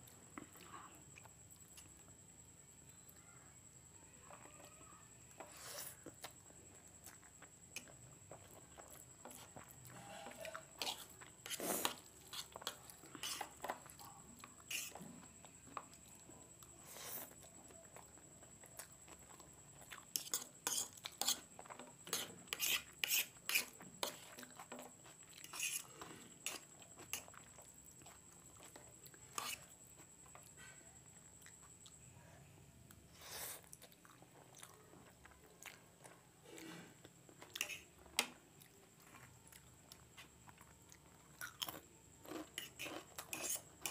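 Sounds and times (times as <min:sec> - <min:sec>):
chewing and mouth sounds: 0:06.0 - 0:22.4, 0:23.5 - 0:30.5, 0:32.9 - 0:43.9
fork scraping a plate: 0:09.3 - 0:13.6, 0:14.7 - 0:15.2, 0:20.1 - 0:27.3, 0:29.3 - 0:29.7, 0:36.5 - 0:37.9, 0:42.3 - 0:43.9.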